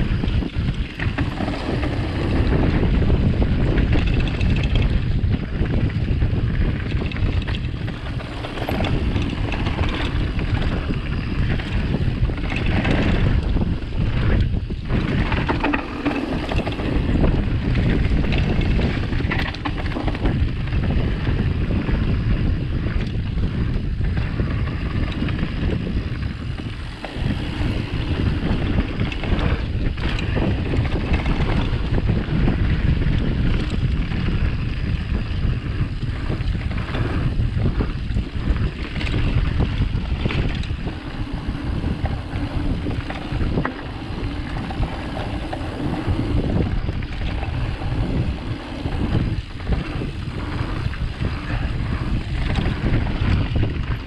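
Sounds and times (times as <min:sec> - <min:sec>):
bike clatter: 0:00.0 - 0:54.0
low rumble: 0:00.0 - 0:54.0
wind buffeting microphone: 0:00.0 - 0:54.0.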